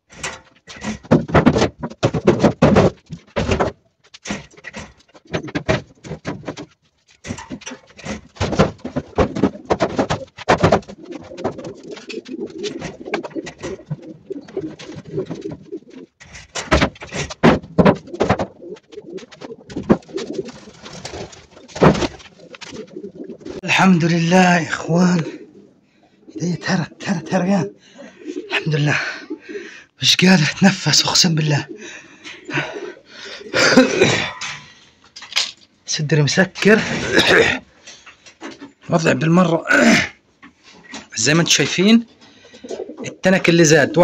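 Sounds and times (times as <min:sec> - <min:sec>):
pigeons cooing: 0:04.2 - 0:30.0, 0:31.3 - 0:35.0, 0:42.1 - 0:44.0
metal tin boxes clattering: 0:19.8 - 0:22.9, 0:35.2 - 0:35.6.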